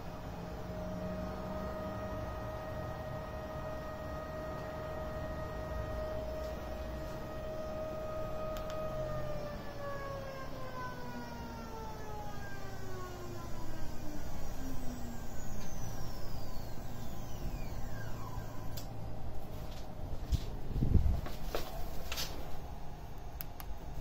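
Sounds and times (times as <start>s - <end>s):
electric motor whining: 0.0s - 19.0s
higher whine sweeping down: 0.0s - 23.0s.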